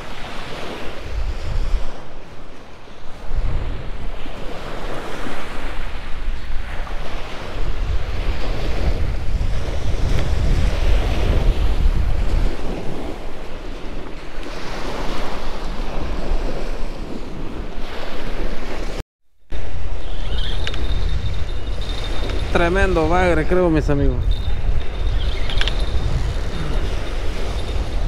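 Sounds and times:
small waves washing up a beach: 0:00.0 - 0:20.8
wind rumbling on microphone: 0:00.0 - 0:28.0.

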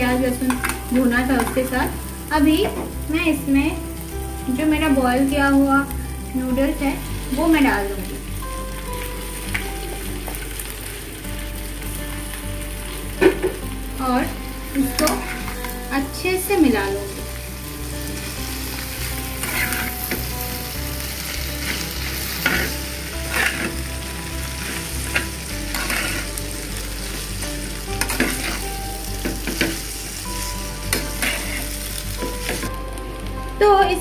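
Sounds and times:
noodles sizzling in pan: 0:00.0 - 0:34.0
utensils scraping and clinking pan: 0:25.1 - 0:26.3, 0:28.0 - 0:28.6, 0:30.9 - 0:31.7.

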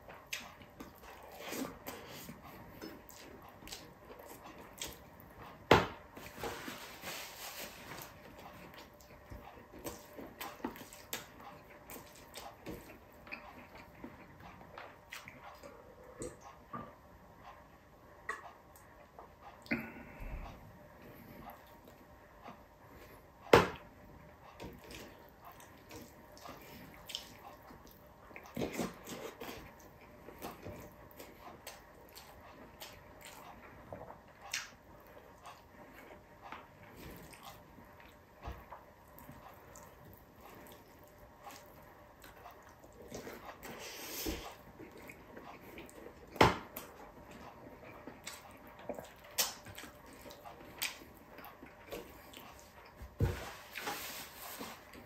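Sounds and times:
chewing with wet mouth smacks: 0:00.2 - 0:05.3, 0:24.7 - 0:33.8, 0:36.9 - 0:53.0.

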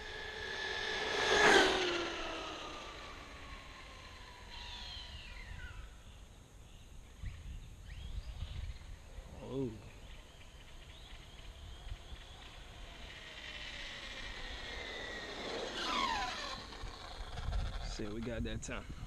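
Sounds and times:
rc truck motor whining: 0:00.0 - 0:05.8, 0:11.8 - 0:18.3.

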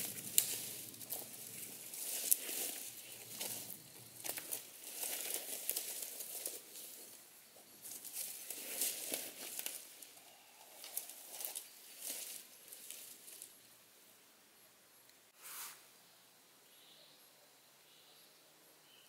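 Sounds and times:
dry leaves rustling and crackling: 0:00.0 - 0:13.7.

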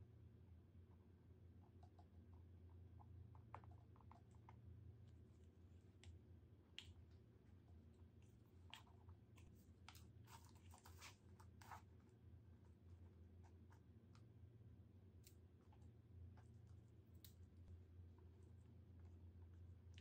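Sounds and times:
low steady hum: 0:00.0 - 0:20.0
crackles of paper and straw handling: 0:08.7 - 0:12.0.

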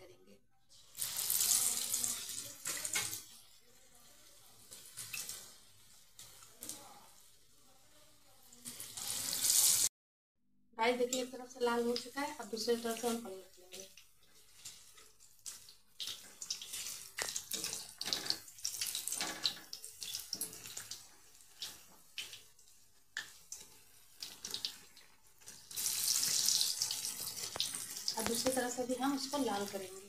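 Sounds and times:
oil sizzling: 0:00.7 - 0:09.9, 0:11.0 - 0:30.0.

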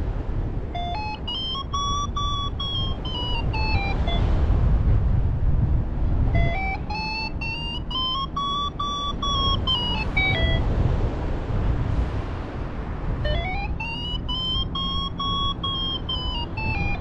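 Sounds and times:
low wind rumble: 0:00.0 - 0:17.0
variometer beeping tone: 0:00.7 - 0:04.4, 0:06.3 - 0:10.7, 0:13.2 - 0:17.0.

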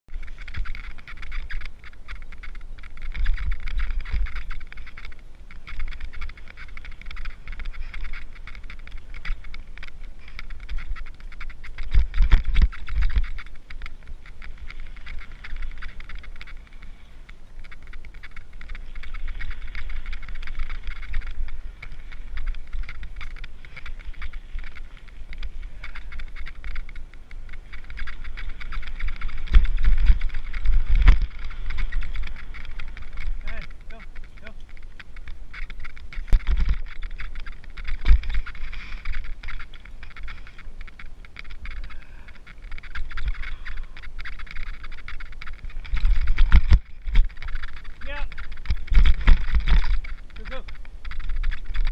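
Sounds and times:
bike jolts: 0:00.1 - 0:51.9
mountain bike rattling on trail: 0:00.1 - 0:51.9.

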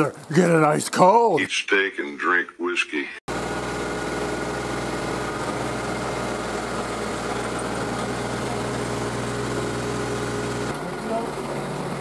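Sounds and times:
engine idling: 0:03.3 - 0:12.0.

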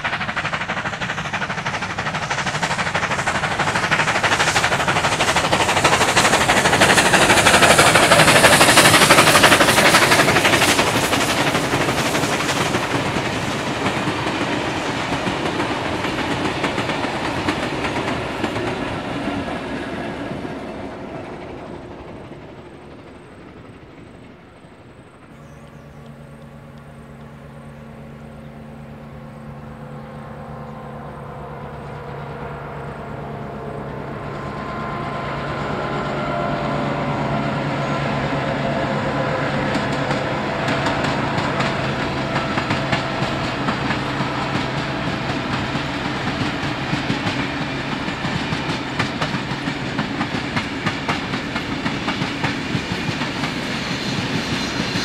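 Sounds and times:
train wheels clicking over rail joints: 0:00.0 - 0:30.6, 0:31.4 - 0:55.0
diesel locomotive engine droning: 0:00.0 - 0:55.0.

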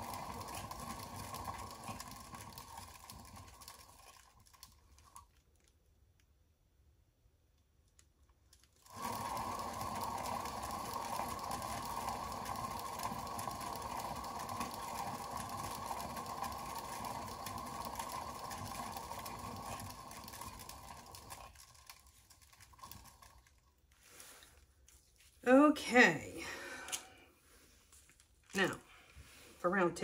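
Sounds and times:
small electric motor running: 0:00.0 - 0:04.2, 0:08.8 - 0:22.0.

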